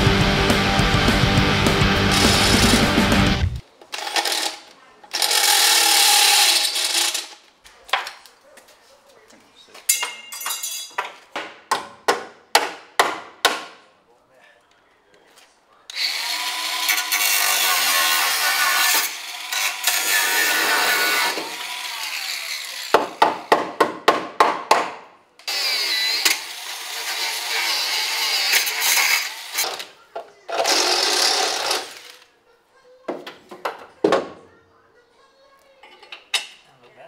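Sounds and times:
angle grinder cutting sheet steel: 2.1s - 3.1s, 5.2s - 7.3s, 15.9s - 22.9s, 25.5s - 29.8s.

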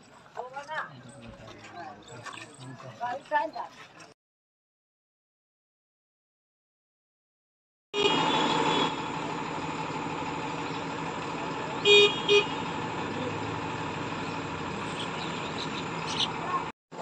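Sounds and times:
truck horn toots: 8.0s - 9.2s, 11.8s - 12.9s
vehicle mechanical hum: 8.0s - 16.7s.

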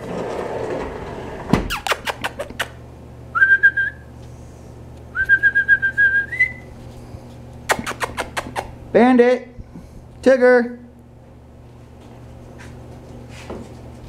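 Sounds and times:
person whistling: 3.3s - 4.0s, 5.1s - 6.7s.

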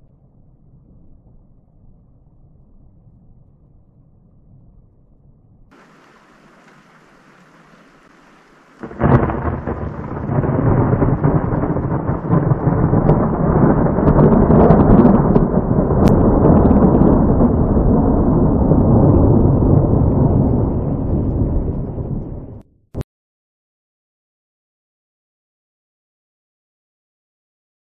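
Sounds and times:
faint hiss: 5.7s - 10.3s
thunder clap and rumble: 5.7s - 22.6s.

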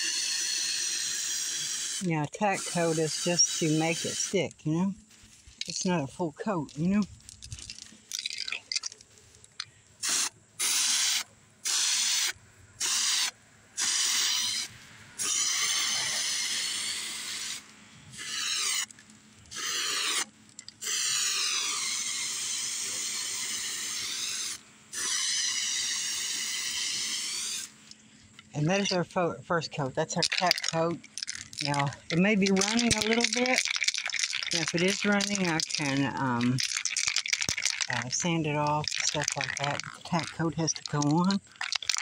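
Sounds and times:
aerosol can spraying: 0.0s - 4.4s, 10.0s - 14.6s, 18.2s - 18.9s, 19.5s - 27.7s.

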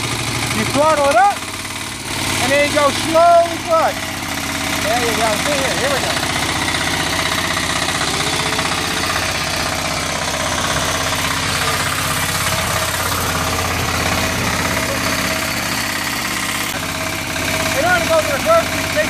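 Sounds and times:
diesel walking tractor chugging: 0.0s - 19.0s.

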